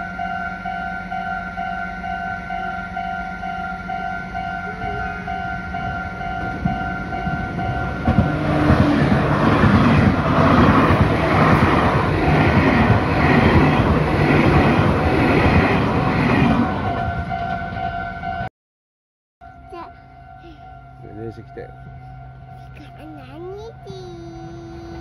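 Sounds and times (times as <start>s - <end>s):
level crossing warning bell: 0.0s - 14.3s, 19.4s - 24.9s.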